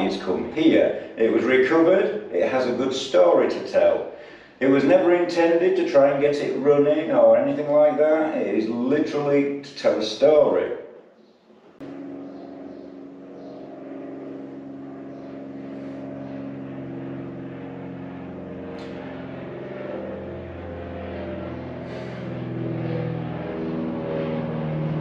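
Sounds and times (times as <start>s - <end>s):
piston aircraft engine drone: 0.0s - 25.0s.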